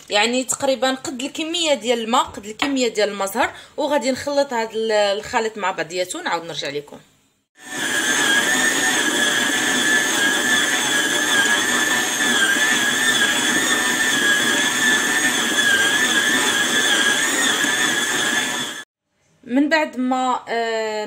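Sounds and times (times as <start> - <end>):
stand mixer motor whining: 7.6 - 18.9.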